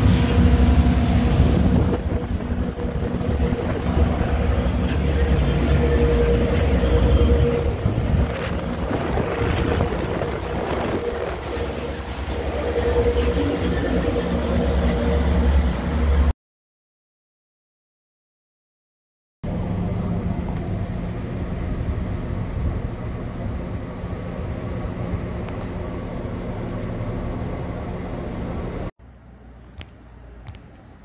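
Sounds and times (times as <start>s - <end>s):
boat engine drone: 0.0s - 16.3s, 19.5s - 29.6s
water rushing along hull: 0.0s - 16.3s
wind buffeting microphone: 0.0s - 16.3s.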